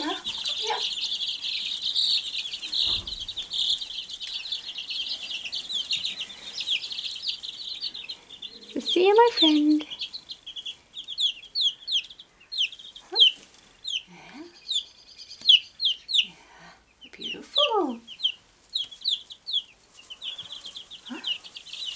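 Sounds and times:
chicks peeping: 0.0 - 21.9.

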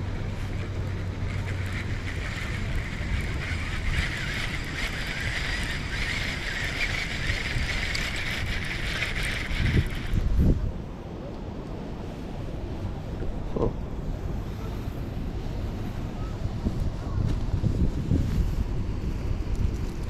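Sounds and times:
low wind rumble: 0.0 - 20.0
fishing reel gears whirring: 0.1 - 10.6.

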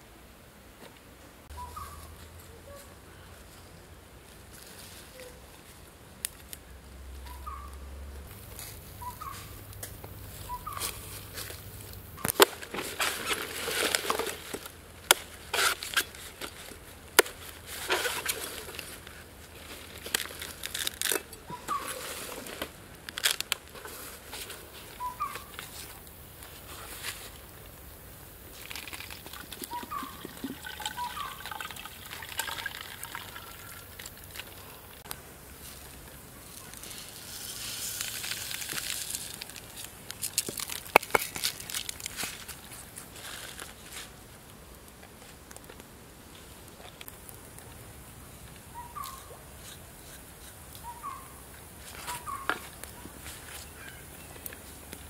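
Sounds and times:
bird chirps: 1.5 - 2.1, 7.2 - 7.9, 8.9 - 9.7, 10.3 - 11.3, 21.4 - 22.1, 25.0 - 25.6, 29.6 - 31.5, 48.7 - 49.4, 50.8 - 51.4, 52.0 - 52.6.

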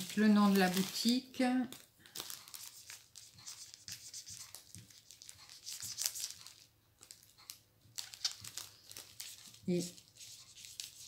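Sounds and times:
plastic crinkling: 0.0 - 11.0
pen scratching on plastic: 2.7 - 6.6, 9.2 - 11.0.

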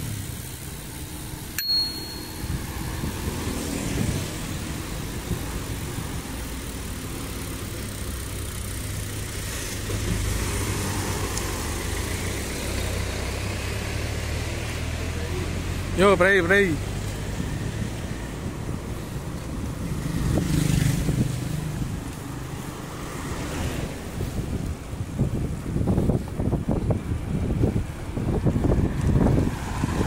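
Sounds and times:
road traffic: 0.0 - 30.0
wind: 0.0 - 30.0
bicycle bell ding: 1.5 - 3.2.

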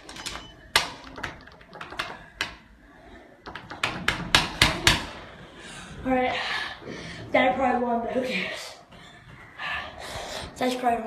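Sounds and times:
sharp taps and clicks: 0.2 - 2.6, 3.4 - 5.1.

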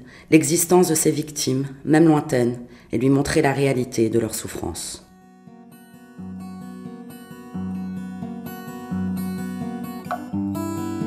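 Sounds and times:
acoustic guitar music: 3.2 - 11.0.

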